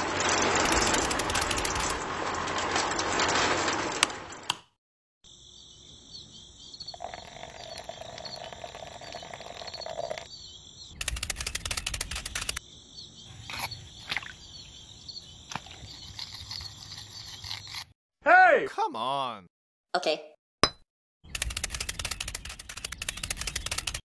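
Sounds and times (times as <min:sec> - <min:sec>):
toy gears clicking: 0:00.5 - 0:02.0, 0:11.0 - 0:12.6, 0:21.3 - 0:24.0
insects chirping: 0:05.2 - 0:17.8
birds chirping: 0:05.4 - 0:17.9, 0:21.3 - 0:24.0.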